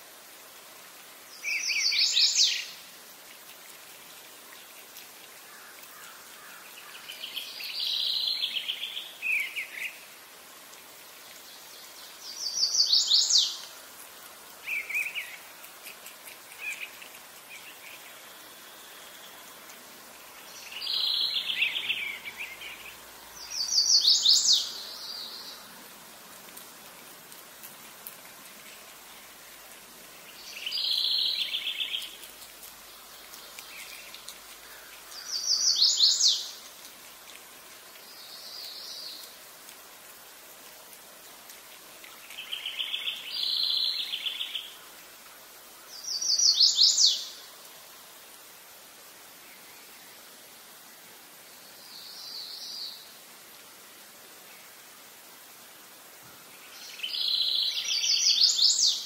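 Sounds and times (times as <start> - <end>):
faint outdoor hiss: 0.0 - 59.0
songbird singing: 1.2 - 3.0, 4.5 - 10.2, 11.0 - 26.4, 27.9 - 39.5, 42.0 - 45.0, 45.7 - 47.8, 51.4 - 53.2, 56.3 - 59.0.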